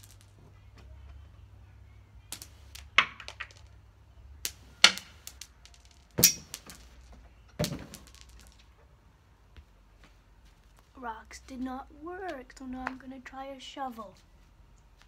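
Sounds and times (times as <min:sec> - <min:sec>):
rocks striking concrete: 0:02.3 - 0:03.8, 0:04.5 - 0:08.7.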